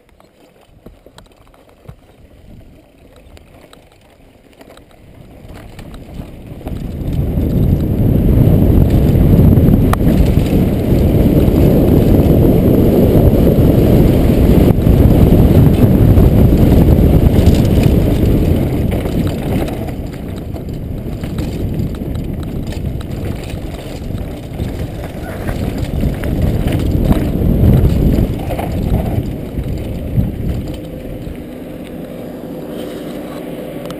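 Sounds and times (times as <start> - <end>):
wind on microphone: 0.0 - 4.0, 4.8 - 33.9
mountain bike rattling over grass: 0.0 - 33.9.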